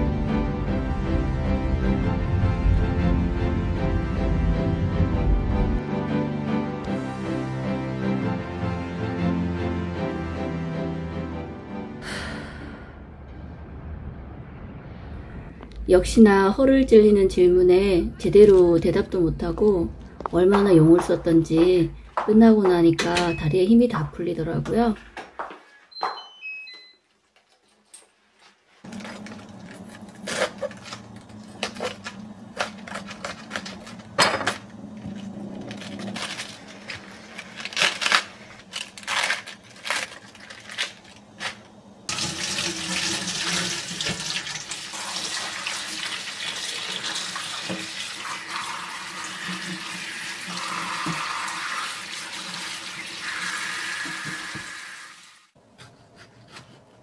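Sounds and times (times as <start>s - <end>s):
lettuce leaves tearing: 28.8s - 41.7s.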